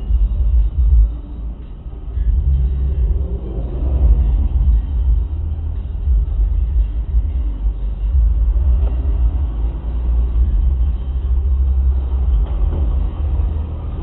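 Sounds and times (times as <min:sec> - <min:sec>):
car engine rumble: 0:00.0 - 0:14.0
road noise inside car: 0:00.0 - 0:14.0.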